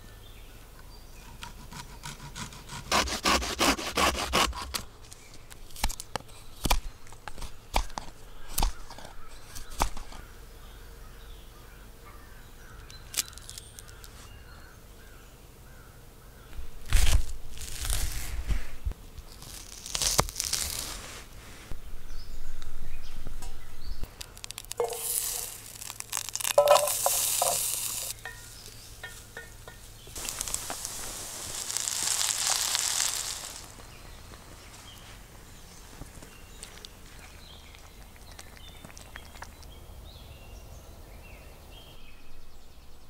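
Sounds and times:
knife cutting onion: 1.3 - 4.8
food being stirred: 24.4 - 33.7
food sizzling in frying pan: 24.7 - 29.2, 30.1 - 33.8.

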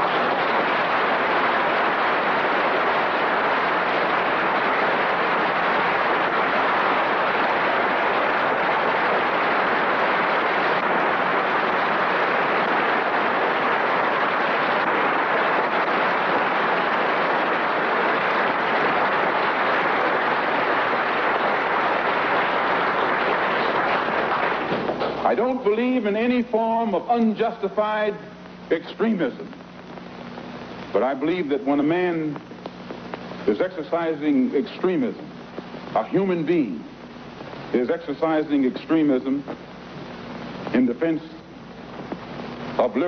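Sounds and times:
large audience applauding: 0.0 - 26.8.

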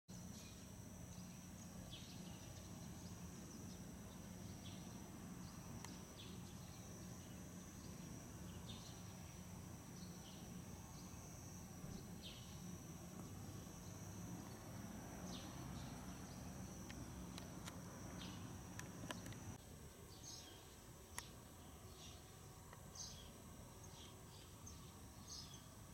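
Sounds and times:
low steady hum: 0.1 - 25.9
small birds chirping: 0.2 - 25.9
sharp clicks: 18.7 - 19.6.

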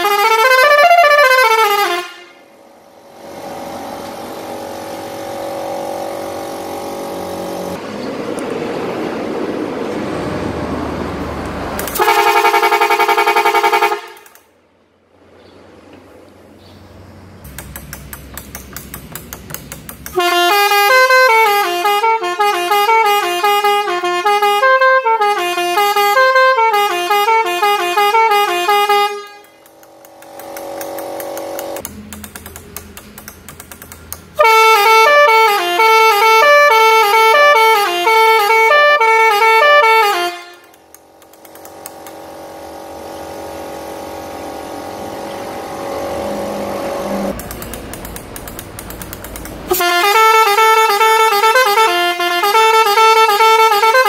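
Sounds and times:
air horn playing tunes: 0.0 - 3.6, 11.8 - 14.5, 20.1 - 31.8, 34.4 - 47.4, 49.7 - 54.0
steady drone: 0.1 - 9.8, 19.9 - 32.9, 34.4 - 47.9.

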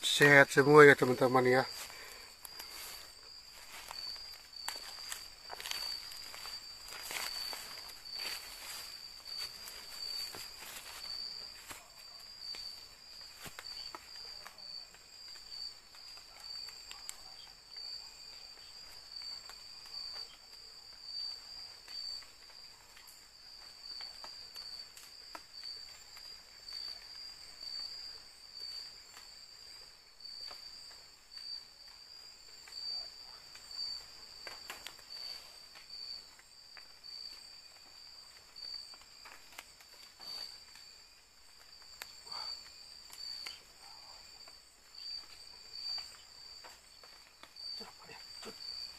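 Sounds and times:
night insects chirring: 0.0 - 48.9
footsteps through undergrowth: 0.9 - 20.3, 30.2 - 48.9.

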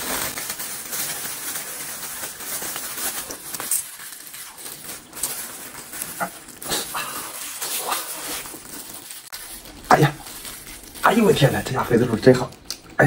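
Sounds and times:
wet chewing: 3.2 - 11.5
noodles slurped: 4.4 - 11.8.

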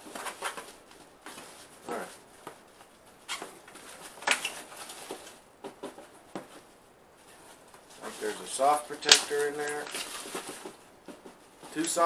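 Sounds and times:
cardboard box rustling: 7.4 - 12.0.

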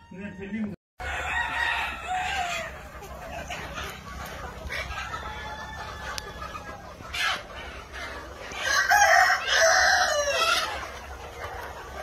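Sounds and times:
chickens clucking: 0.0 - 12.0
rooster crowing: 1.0 - 2.8, 8.6 - 10.7.

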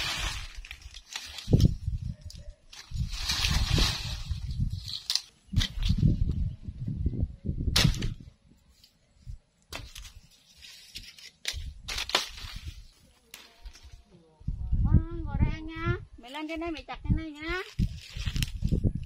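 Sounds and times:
twigs and leaves rustling: 0.0 - 6.7, 7.8 - 14.2, 16.2 - 19.0
machete chopping branches: 7.7 - 8.2, 11.4 - 12.7.

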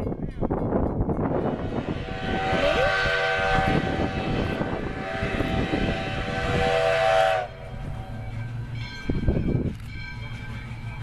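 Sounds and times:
rough low rumble: 1.1 - 10.9
steam locomotive whistle: 1.3 - 8.5.

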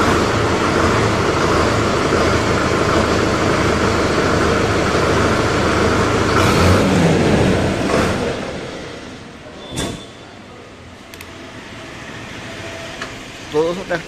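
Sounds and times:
diesel engine idling: 0.0 - 9.6.

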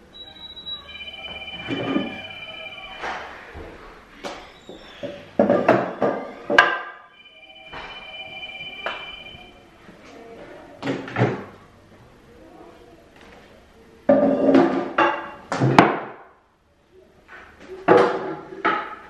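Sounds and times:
plastic chairs knocking on table: 5.0 - 6.9.

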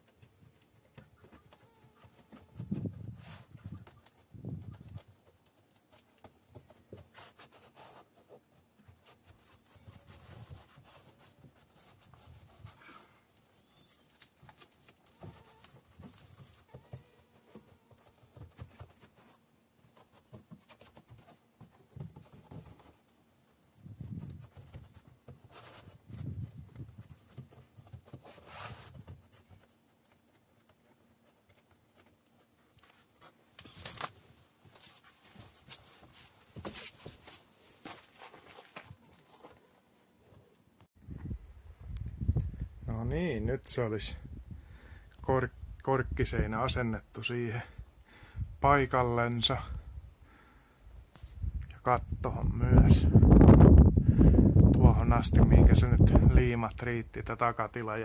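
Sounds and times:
sheet rubbing and rustling: 24.0 - 29.4.

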